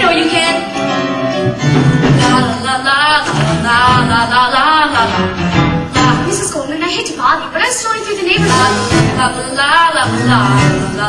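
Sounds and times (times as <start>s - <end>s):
band accompaniment: 0.0s - 6.6s, 8.3s - 11.0s
person singing: 8.3s - 11.0s.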